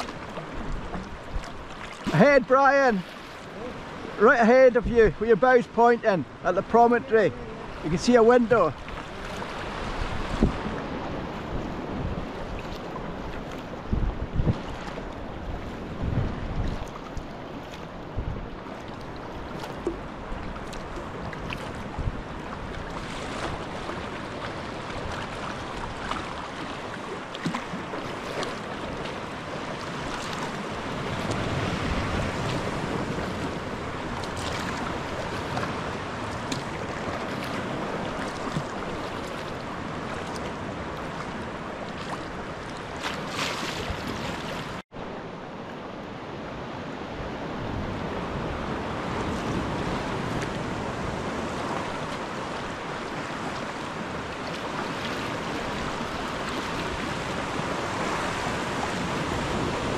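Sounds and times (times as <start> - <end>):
short splashes: 0.0 - 4.2
waves breaking on rocks: 0.0 - 44.8, 47.3 - 59.9
water lapping around kayak: 0.0 - 59.9
wind on microphone: 8.8 - 26.4, 27.0 - 44.8.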